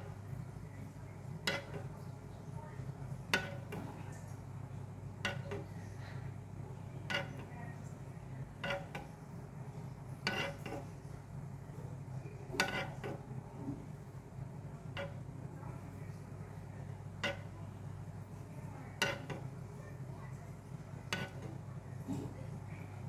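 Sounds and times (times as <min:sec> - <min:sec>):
steady low hum: 0:00.0 - 0:23.0
metal ladle clinking on pan: 0:21.1 - 0:21.5.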